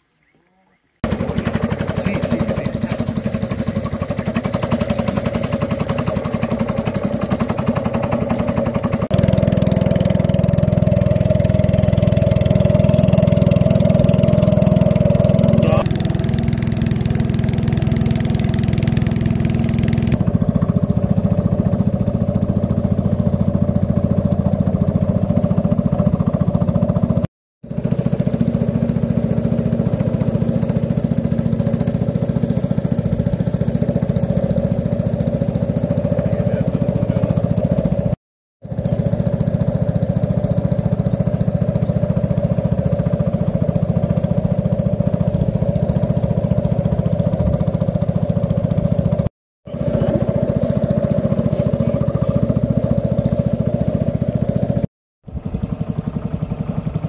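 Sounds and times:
boat motor running: 1.0s - 57.0s.

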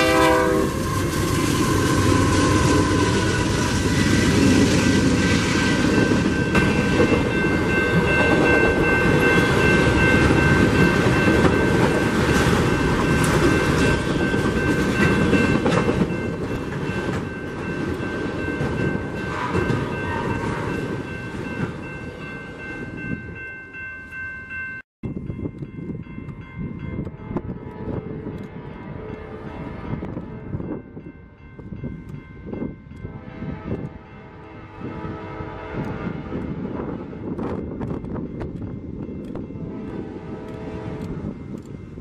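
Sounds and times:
train wheels clattering on rails: 1.0s - 21.9s
high steady ringing tone: 5.6s - 27.5s.

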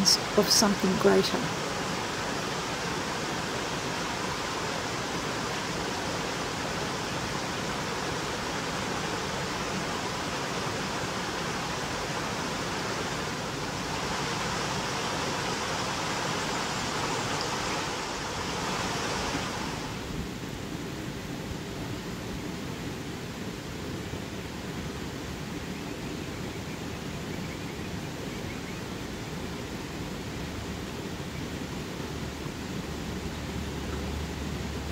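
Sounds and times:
steady rushing noise: 0.0s - 25.2s.

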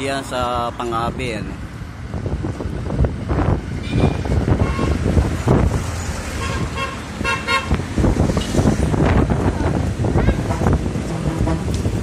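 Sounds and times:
street noise: 0.0s - 12.0s
wind rumble on microphone: 1.0s - 12.0s
horn tooting: 3.8s - 5.0s, 6.4s - 7.8s, 10.2s - 12.0s.

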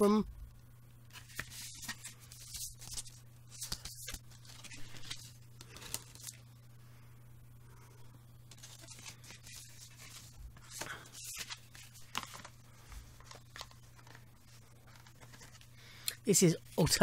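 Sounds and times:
low steady hum: 0.0s - 17.0s
cardboard and paper rustling: 1.1s - 6.4s, 8.5s - 15.7s.

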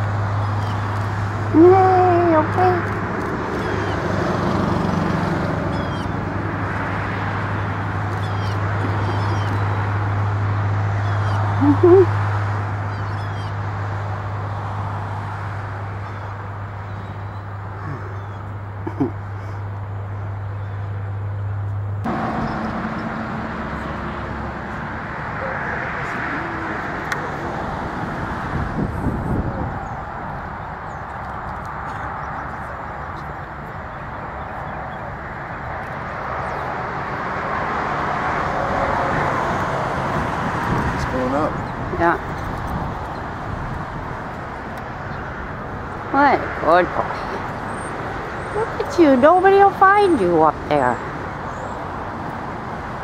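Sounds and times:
distant road traffic: 0.0s - 53.0s
rushing background noise: 0.0s - 53.0s
bird chirping: 5.7s - 6.2s, 7.6s - 9.8s, 11.0s - 12.1s, 12.9s - 13.6s.

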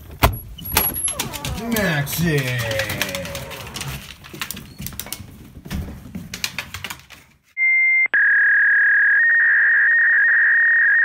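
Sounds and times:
clicks and rustling: 0.0s - 7.4s.

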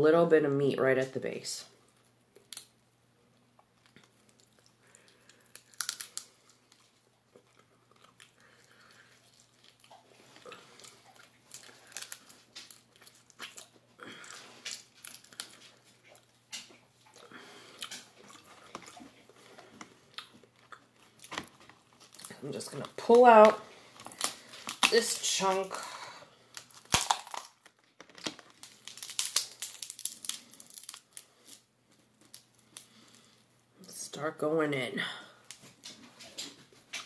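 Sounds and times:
soft chewing: 1.8s - 23.0s, 27.6s - 33.8s
lobster shell crackling: 3.6s - 34.1s.

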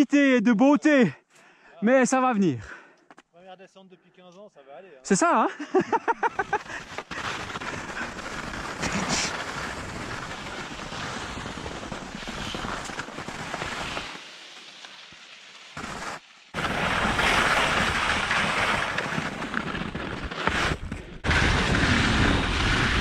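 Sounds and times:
skis hissing and scraping on snow: 5.7s - 23.0s.

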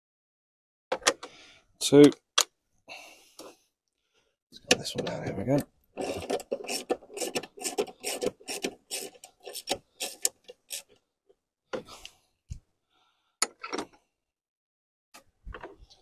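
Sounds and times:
ratchet rasping: 6.0s - 10.9s
tool scrape: 6.0s - 10.9s.

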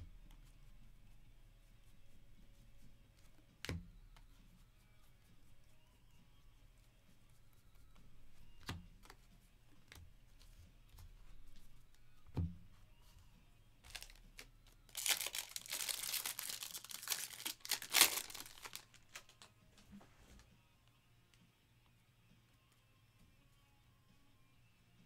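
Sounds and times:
foil wrapper tearing and crinkling: 13.9s - 19.5s.

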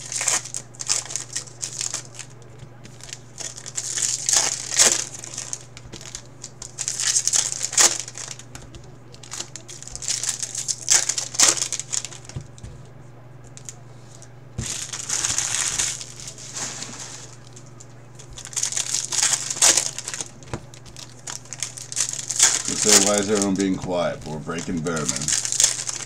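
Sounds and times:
foil wrappers crinkling: 0.0s - 12.7s, 13.5s - 26.0s
low steady hum: 0.0s - 26.0s.

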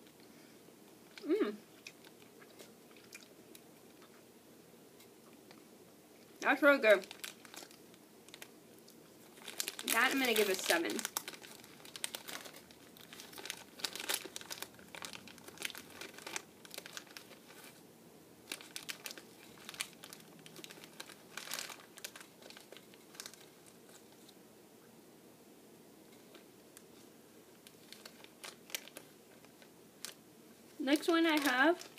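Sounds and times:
candy packaging crinkling: 6.2s - 17.8s, 18.4s - 24.4s, 26.2s - 31.9s.

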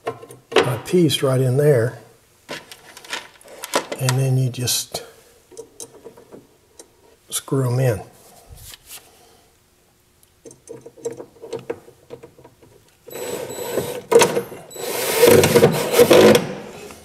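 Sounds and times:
cordless drill driving a screw: 13.1s - 16.4s.

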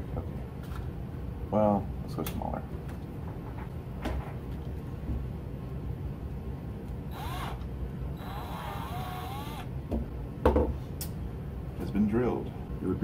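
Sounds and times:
cordless drill whining: 7.1s - 9.7s.

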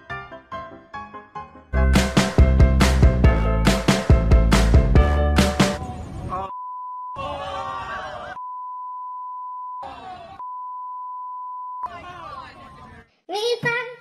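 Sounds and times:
censor beep tone: 6.5s - 7.3s, 8.4s - 11.9s
voices: 9.8s - 10.4s.

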